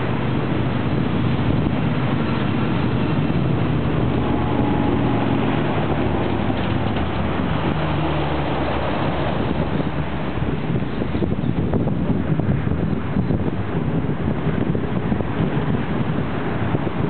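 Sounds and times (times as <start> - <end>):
train wheels on rails: 0.0 - 13.6
locomotive engines droning: 0.0 - 17.0.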